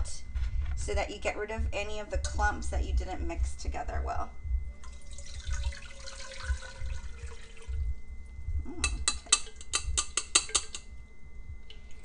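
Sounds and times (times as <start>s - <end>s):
strainer tapping metal pot rim: 8.8s - 10.9s.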